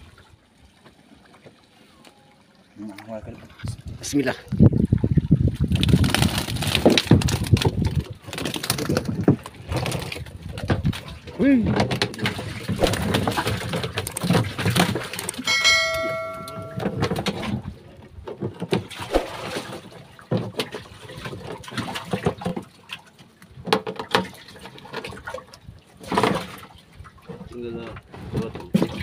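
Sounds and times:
water splashing and sloshing: 0.0 - 29.0
metallic ring: 15.5 - 17.2.

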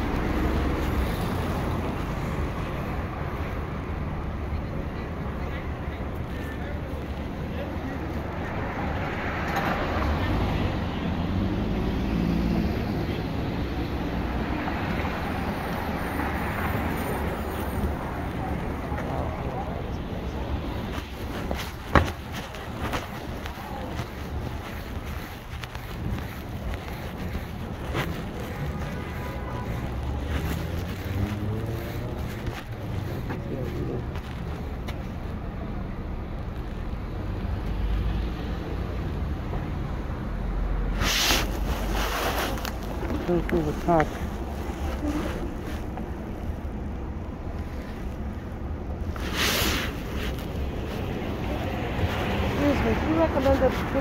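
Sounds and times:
traffic rumble and tyre noise: 0.0 - 54.0
engine hum: 16.4 - 54.0.

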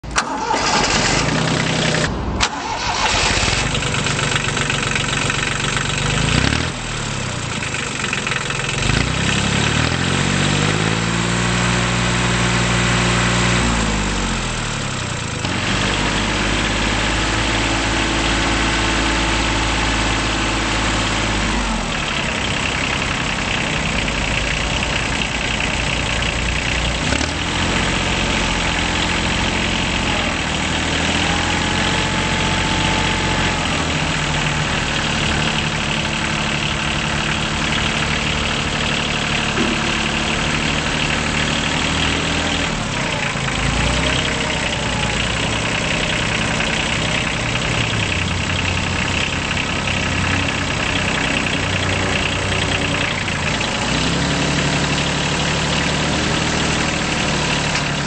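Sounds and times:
tractor diesel engine revving: 0.0 - 58.0.

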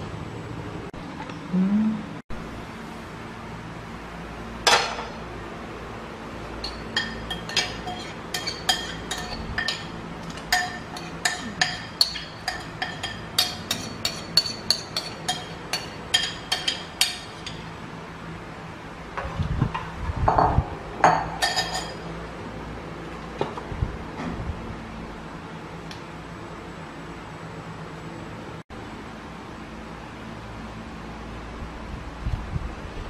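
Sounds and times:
metal spoon clinking on bowl: 6.6 - 17.7, 21.1 - 22.0.

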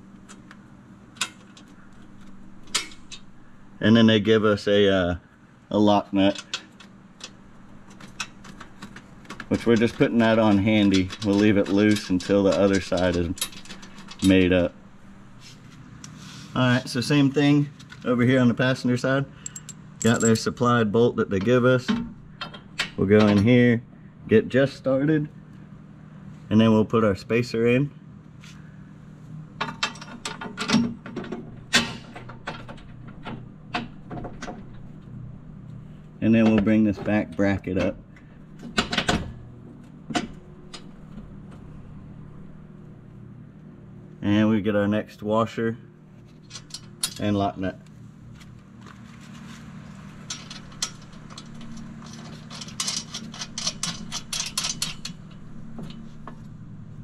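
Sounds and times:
steady low hum: 0.0 - 57.0
metal hardware clinking: 19.3 - 20.5, 46.4 - 47.4, 50.2 - 56.1
metallic clicks and knocks: 19.4 - 20.4, 50.3 - 56.4.

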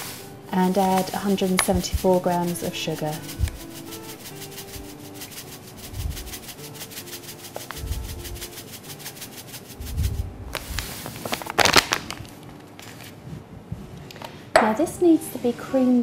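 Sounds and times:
sugar pouring into glass bowl: 0.0 - 11.9
bag rustling: 9.6 - 13.2.

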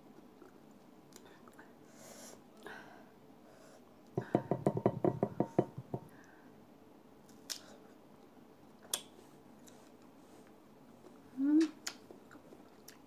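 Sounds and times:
mango bitten and chewed: 11.1 - 13.0.

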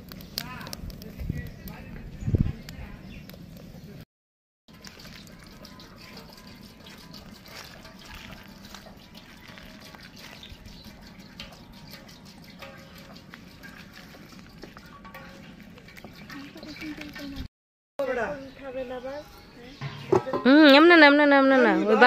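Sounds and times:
oil drips and splashes: 4.7 - 17.4
oil trickling into pot: 4.7 - 17.5.

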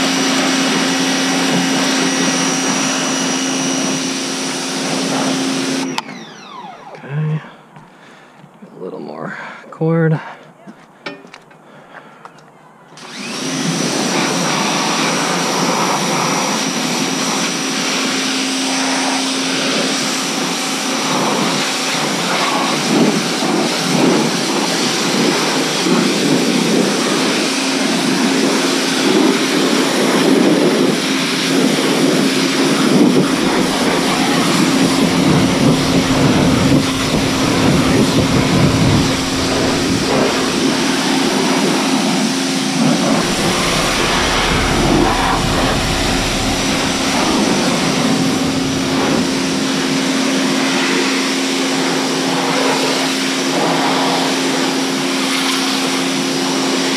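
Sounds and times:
pressure washer motor humming: 0.0 - 7.1, 32.2 - 50.9
deep rumble: 32.2 - 50.7
water jet hissing: 32.3 - 41.7.

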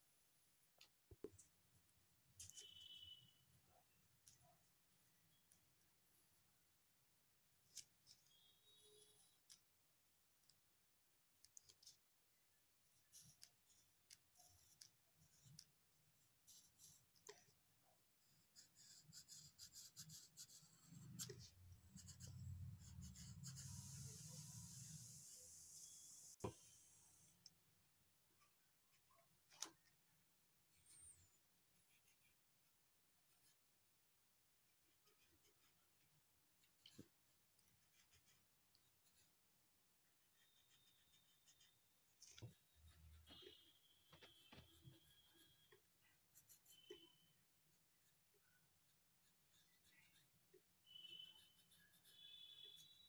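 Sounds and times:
pencil scratching on paper: 7.6 - 9.8, 12.8 - 27.5, 30.6 - 33.8, 34.7 - 53.0.

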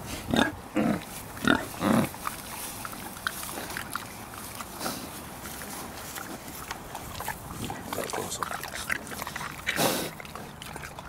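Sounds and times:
pig chewing with wet smacking: 0.3 - 11.0.

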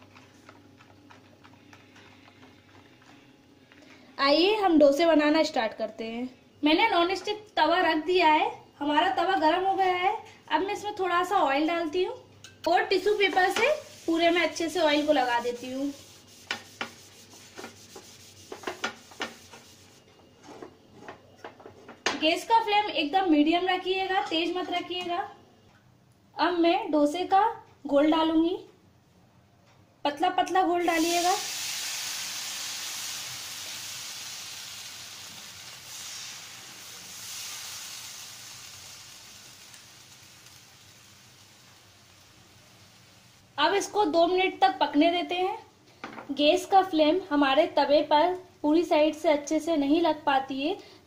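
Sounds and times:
tissue paper rubbing on a hot pan: 13.0 - 20.0, 30.8 - 43.4.

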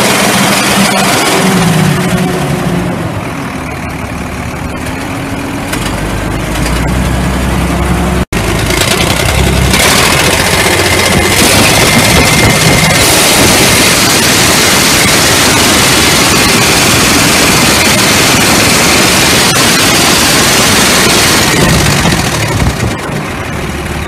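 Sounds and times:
diesel engine idling: 0.0 - 24.0.

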